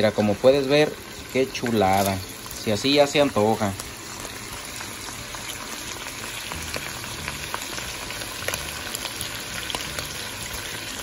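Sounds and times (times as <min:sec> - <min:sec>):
meat and onion sizzling in a pot: 0:00.0 - 0:11.0.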